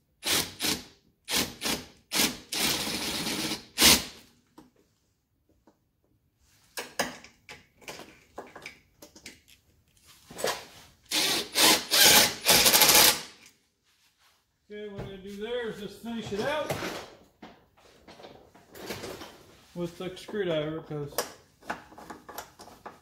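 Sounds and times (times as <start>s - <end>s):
impact driver driving screws: 11.1s - 13.5s.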